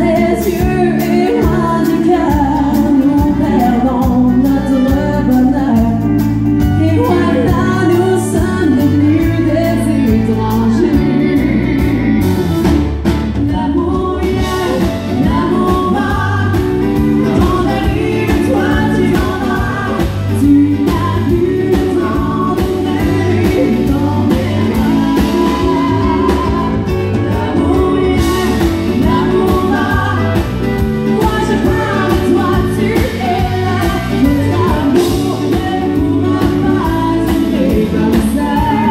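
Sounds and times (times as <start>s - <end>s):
woman singing into microphone: 0.0s - 12.2s, 13.3s - 38.9s
country backing band: 0.0s - 38.9s.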